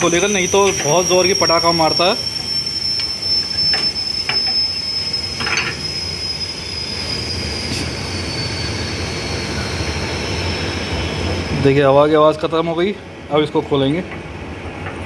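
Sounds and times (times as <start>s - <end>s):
high whistle: 0.0s - 11.9s
compressed air hissing: 6.9s - 8.9s.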